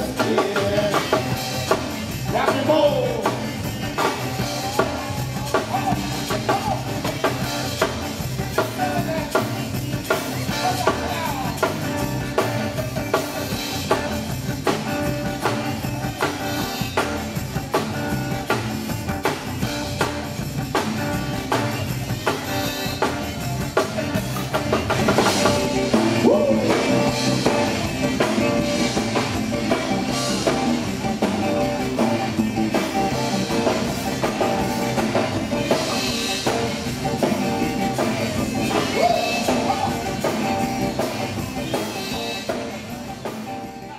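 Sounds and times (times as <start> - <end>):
cajun dance band playing: 0.0 - 43.9
drum kit beat: 0.0 - 43.9
guitar with bent notes: 0.0 - 43.9.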